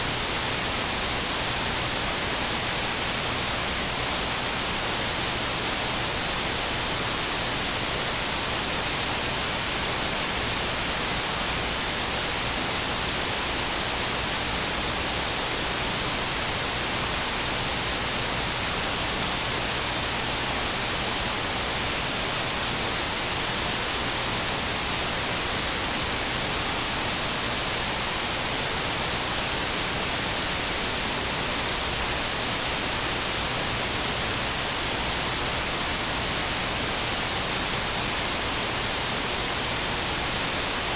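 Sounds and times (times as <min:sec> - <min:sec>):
static hiss: 0:00.0 - 0:40.9.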